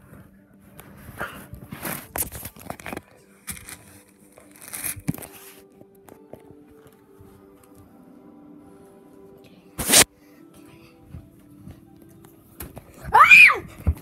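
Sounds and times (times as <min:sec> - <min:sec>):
rustling and crinkling: 0:00.0 - 0:07.9.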